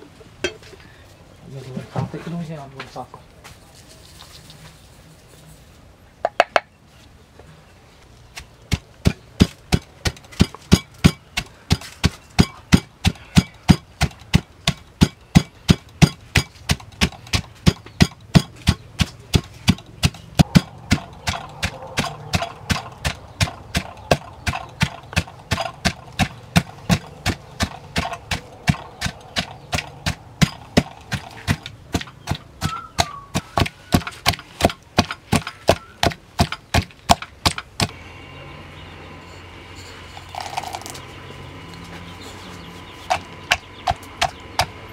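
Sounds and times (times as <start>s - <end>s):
wooden pestle pounding in mortar: 8.7s - 38.0s, 43.1s - 44.8s.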